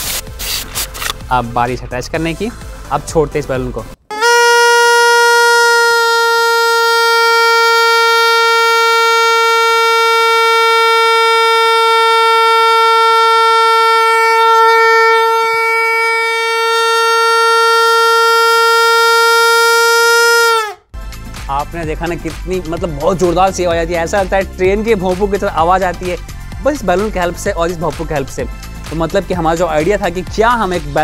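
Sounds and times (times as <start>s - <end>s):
plastic horn loud blast: 4.1s - 20.9s.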